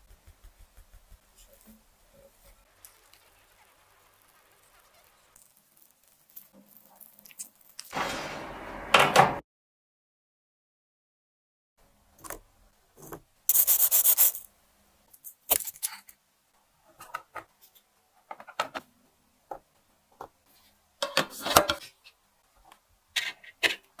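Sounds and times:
cookies and plastic boxes handled: 15.1s - 16.2s, 16.8s - 24.0s.

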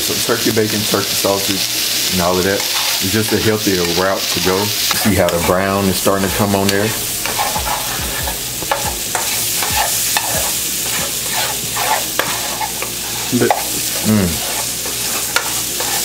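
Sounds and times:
sausage sizzling in frying pan: 0.0s - 16.0s
metal spoon scraping a pan: 2.3s - 16.0s.

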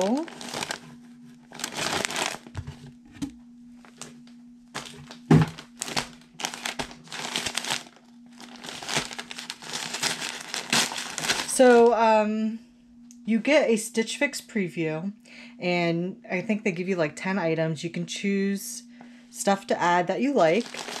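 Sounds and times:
paper wrapping crinkling: 0.0s - 2.9s, 3.8s - 11.9s, 20.5s - 21.0s
dull thump: 5.2s - 5.6s.

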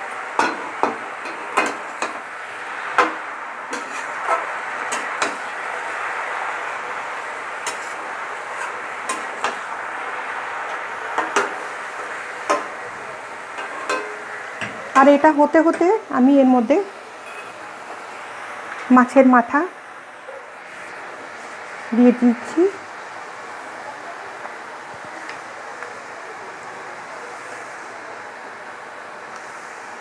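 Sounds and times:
steady hiss from pan: 0.0s - 30.0s
metal spatula scraping a pan: 3.0s - 5.5s, 7.6s - 9.6s, 13.6s - 14.8s.

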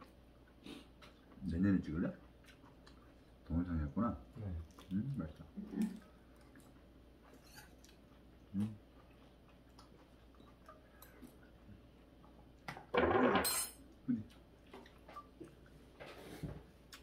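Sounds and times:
chewing: 0.0s - 3.5s, 4.2s - 12.7s, 13.9s - 16.2s, 16.8s - 17.0s.

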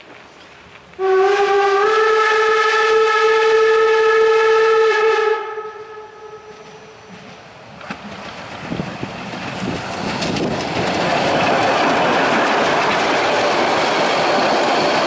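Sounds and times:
steam whistle blast: 1.0s - 7.0s.

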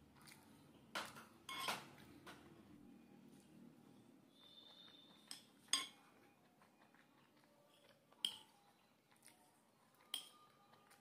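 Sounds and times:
metal spoon clinking on ceramic plate: 1.5s - 1.8s, 5.2s - 6.0s, 8.2s - 8.5s, 10.1s - 10.6s.

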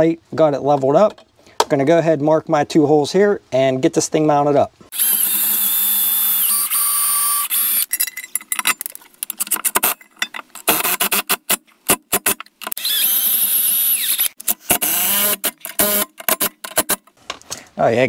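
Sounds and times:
bolts and bracket clicking: 7.5s - 12.8s, 14.2s - 17.6s.

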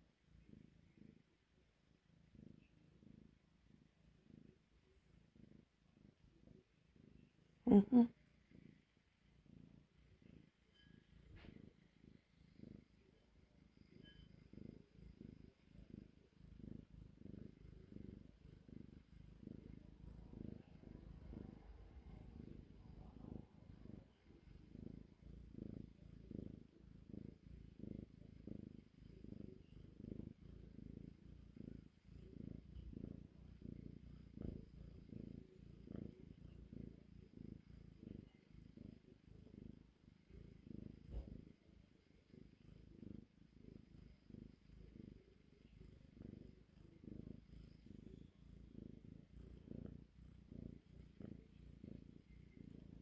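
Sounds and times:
kitten purring: 0.0s - 53.0s.

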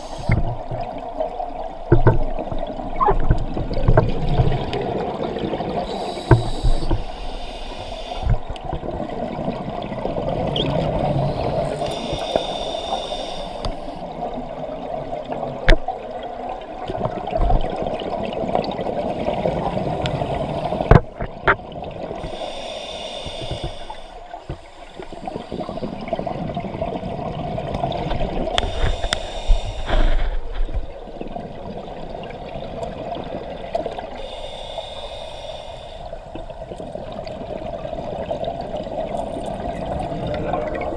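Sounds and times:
exhaled bubbles gurgling: 0.0s - 40.9s
steady underwater hum: 0.0s - 40.9s
diver breathing through regulator: 5.8s - 8.5s, 11.0s - 14.0s, 22.2s - 26.1s, 28.5s - 30.5s, 34.2s - 36.3s.

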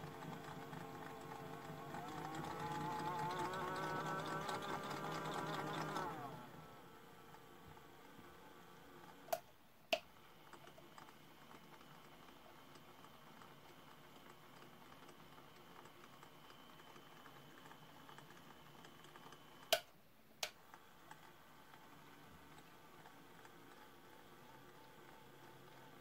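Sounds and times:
toy washing machine motor whir: 0.0s - 6.7s.

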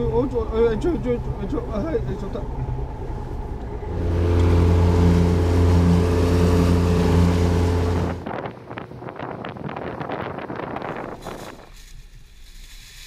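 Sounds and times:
wind and water noise: 0.0s - 13.0s
outboard motor drone: 2.2s - 8.4s
wake rushing: 3.8s - 8.4s.

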